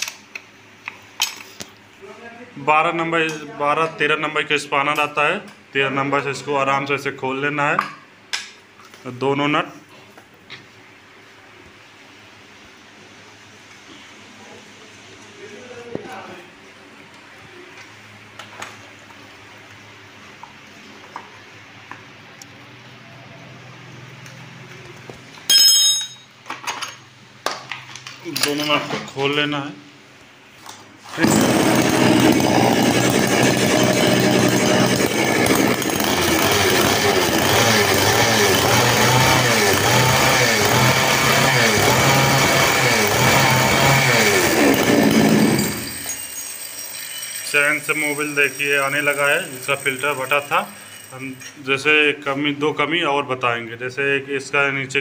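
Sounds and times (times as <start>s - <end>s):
chainsaw engine running: 31.1s - 51.3s.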